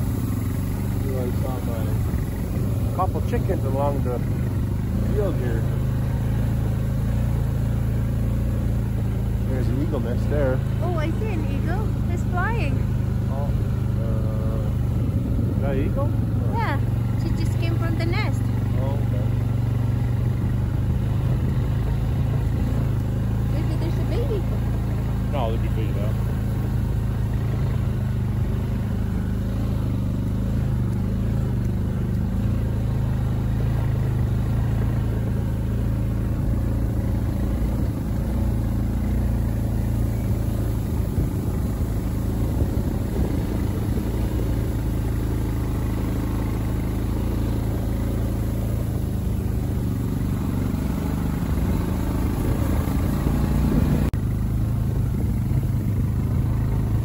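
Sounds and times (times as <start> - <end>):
quad bike engine running: 0.0 - 57.0.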